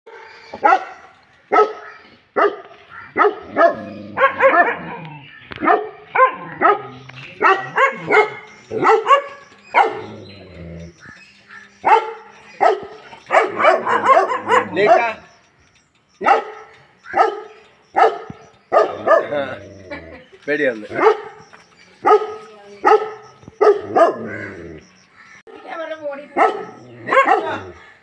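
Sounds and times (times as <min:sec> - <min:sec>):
dog barking: 0:00.1 - 0:10.1, 0:11.8 - 0:15.2, 0:16.2 - 0:19.5, 0:21.0 - 0:21.4, 0:22.0 - 0:24.5, 0:26.4 - 0:27.9.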